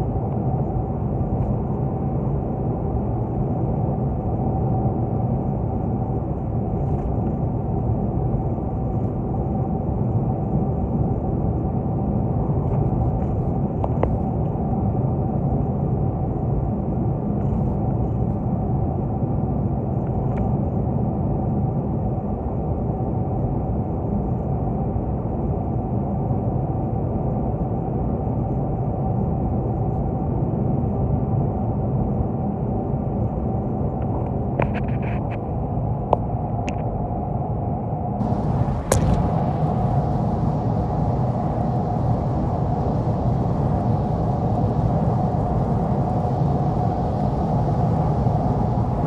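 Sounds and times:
tyre and road noise: 38.2 - 39.8
car engine hum: 38.2 - 40.7.

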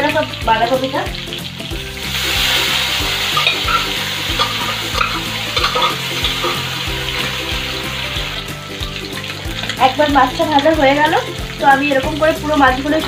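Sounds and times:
vegetables sizzling in oil: 0.0 - 13.0
spoon scraping metal pan: 3.0 - 7.4.

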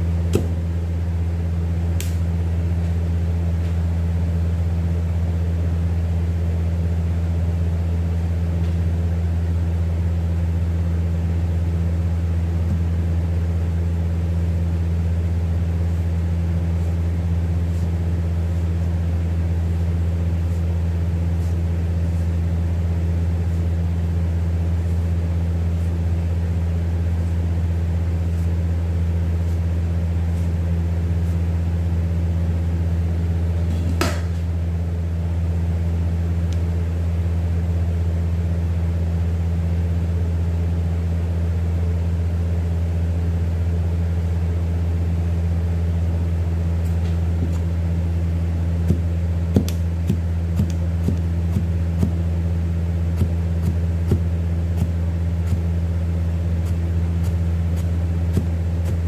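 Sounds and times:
low machine hum: 0.0 - 59.0
cleaver knocking on cutting board: 0.3 - 0.6.

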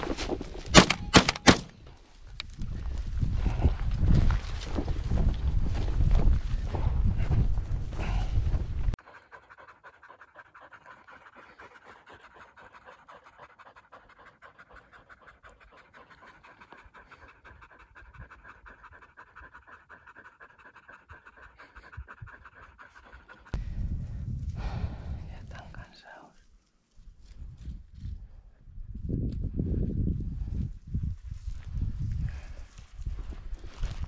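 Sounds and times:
dogs panting: 6.3 - 23.7.

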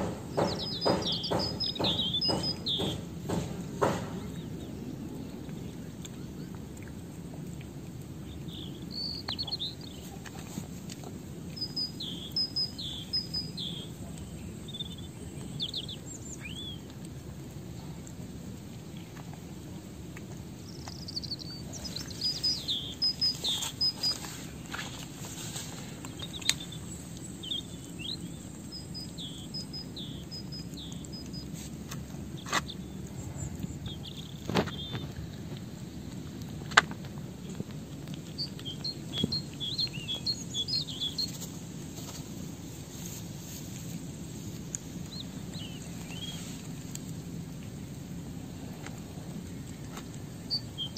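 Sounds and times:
low background rumble: 0.0 - 50.9
small birds chirping: 0.0 - 50.9.

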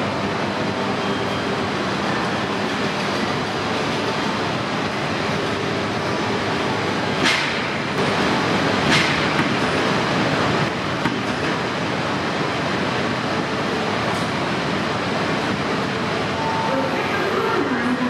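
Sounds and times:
train mechanical running noise: 0.0 - 18.0.

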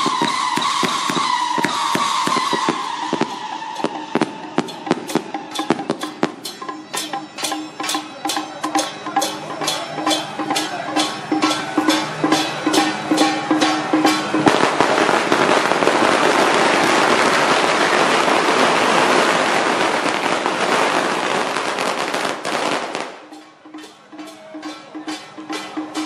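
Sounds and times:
procession music with percussion beat: 0.0 - 18.0, 19.9 - 26.0
firecrackers crackling: 0.0 - 26.0.

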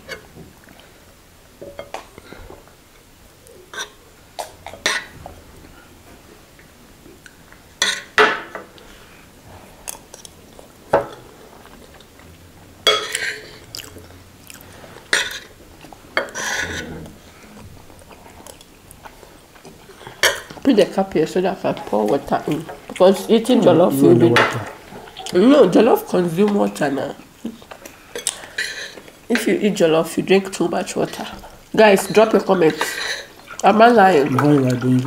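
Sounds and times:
cutlery clinking on plates: 3.7 - 5.2, 7.8 - 8.8, 12.8 - 13.6, 15.1 - 15.5, 20.0 - 20.6, 28.2 - 29.5, 32.0 - 33.3
chewing and mouth noises: 9.8 - 20.6, 24.5 - 25.4, 26.4 - 29.3, 32.7 - 35.0.

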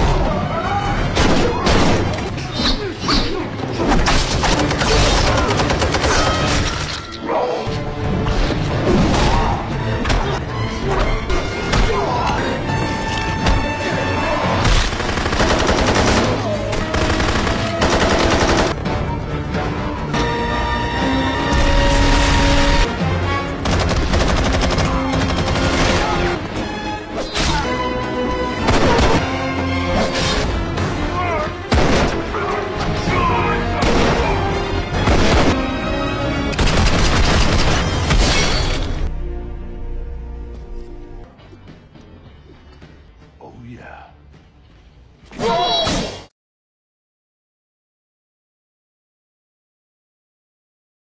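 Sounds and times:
film score music: 0.0 - 46.3
automatic gunfire: 14.8 - 18.8, 36.6 - 37.8.

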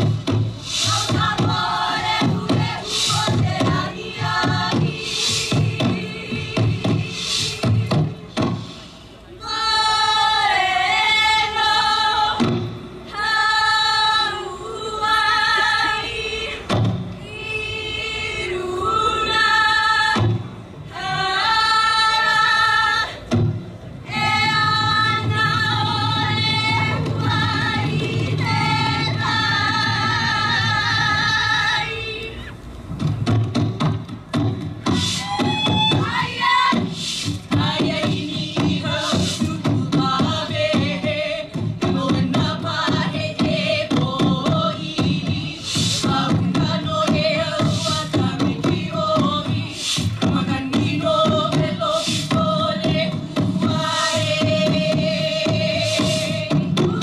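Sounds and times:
high voices singing together: 0.0 - 23.4, 24.0 - 32.7, 34.6 - 57.0.

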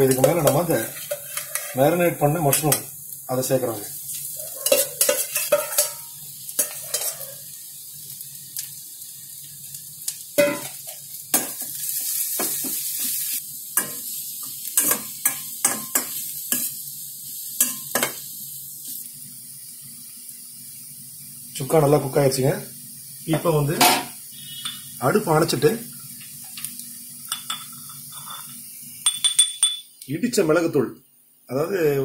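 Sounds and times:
ladle scraping and clinking pan: 0.0 - 2.8, 4.6 - 7.4, 27.3 - 29.4
mushrooms sizzling in hot oil: 0.0 - 29.4.

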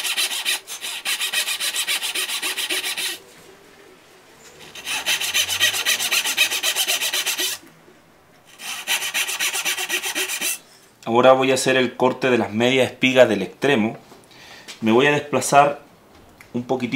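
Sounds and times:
hand saw rasping through wood: 0.0 - 3.2, 4.6 - 7.6, 8.5 - 10.6.

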